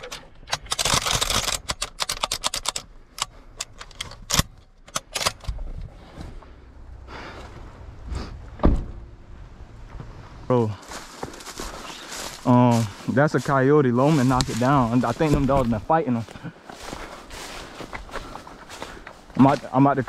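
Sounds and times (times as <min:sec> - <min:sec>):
gear clicking and rattling: 0:00.0 - 0:05.9
heavy thump: 0:08.5 - 0:09.1
camera handling shuffling: 0:14.1 - 0:19.6.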